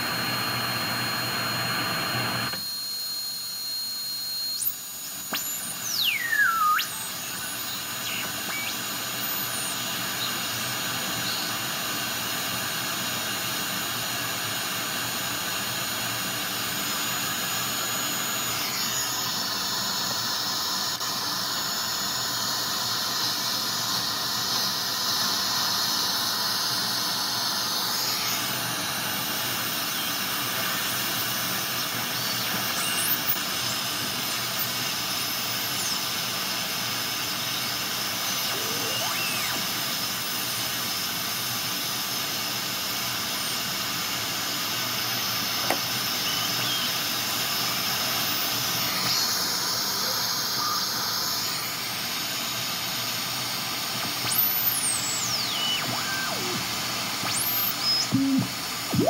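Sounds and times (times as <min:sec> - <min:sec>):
faint gliding whistles: 0:02.6 - 0:11.6, 0:37.4 - 0:40.0, 0:45.9 - 0:51.9, 0:54.2 - 0:59.0
radio static hiss: 0:38.1 - 0:40.0, 0:47.7 - 0:52.6, 0:53.8 - 0:59.0.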